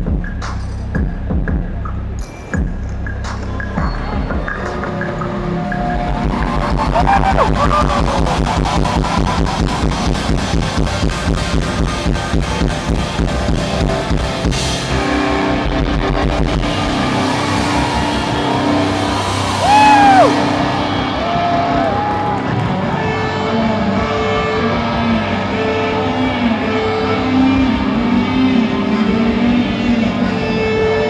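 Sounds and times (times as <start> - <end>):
drum kit: 0.0 - 20.9
distorted electric guitar: 4.2 - 31.0.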